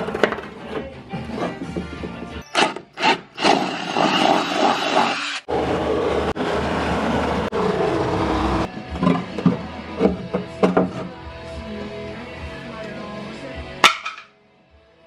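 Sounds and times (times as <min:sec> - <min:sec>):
drill boring wood: 0:02.6 - 0:05.5
jigsaw sawing: 0:02.6 - 0:05.5.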